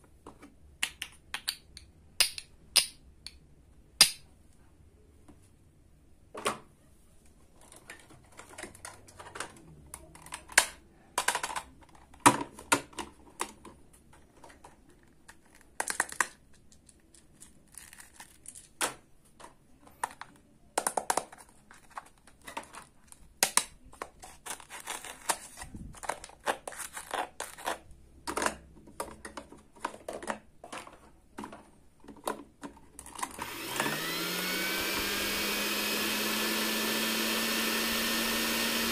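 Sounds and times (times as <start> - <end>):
plastic toy pieces clicking: 15.3 - 18.8
toy mixer motor whine: 33.3 - 38.9.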